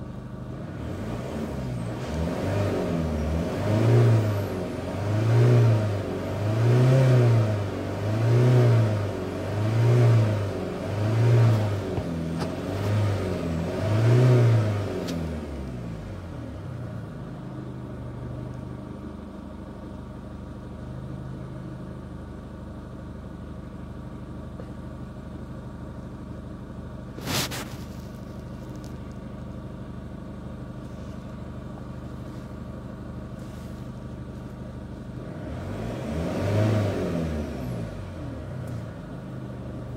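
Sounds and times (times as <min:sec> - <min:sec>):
diesel engine revving: 0:00.5 - 0:18.2, 0:30.8 - 0:39.9.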